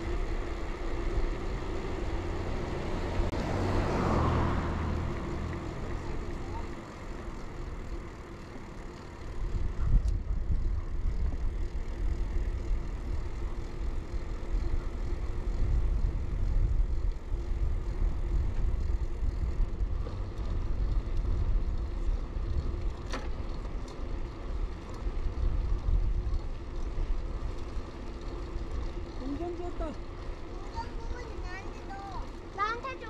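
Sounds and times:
bicycle tyres rolling: 0.0 - 33.0
wind buffeting microphone: 9.4 - 22.9, 25.1 - 27.7.

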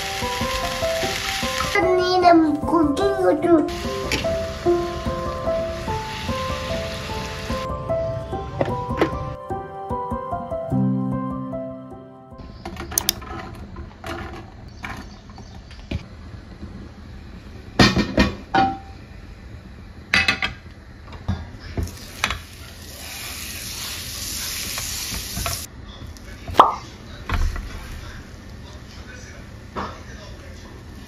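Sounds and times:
gas stove hiss: 0.0 - 2.3, 3.0 - 9.1, 16.1 - 25.7.

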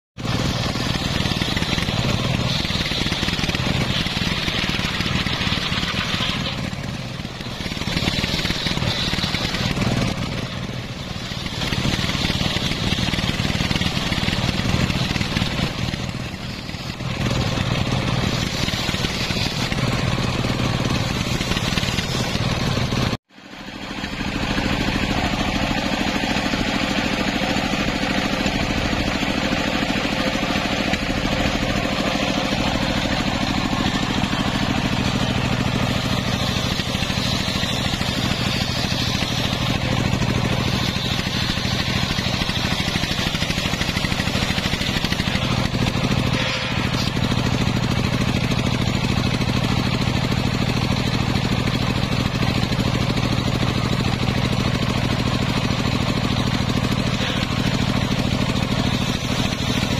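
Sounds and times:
circular saw ripping wood: 0.2 - 59.9
saw humming idle: 0.2 - 59.9.

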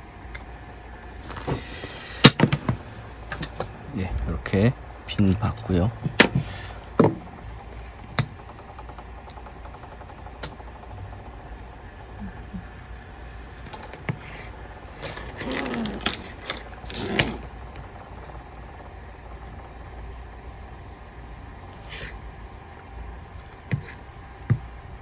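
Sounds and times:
parts rubbing: 12.4 - 18.6.

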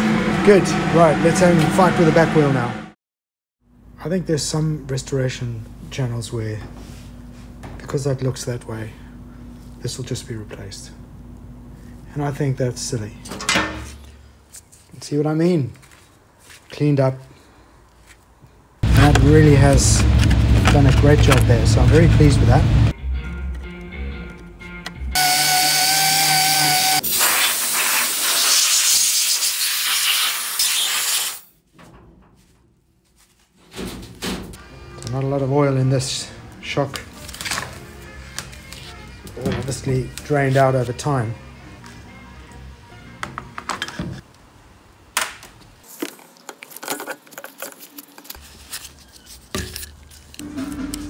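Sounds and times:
compressed air hissing: 25.8 - 31.5.

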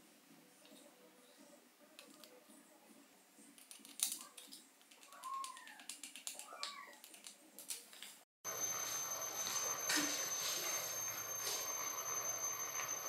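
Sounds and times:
small parts clicking and tapping: 3.6 - 8.2.

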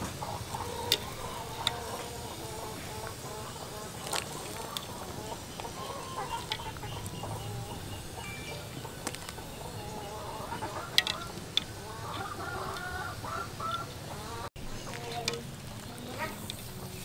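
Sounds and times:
skewers clicking in wok: 0.0 - 2.4, 3.9 - 5.0, 5.6 - 7.2, 10.9 - 13.0, 15.1 - 17.0
chickens clucking: 0.0 - 17.0.

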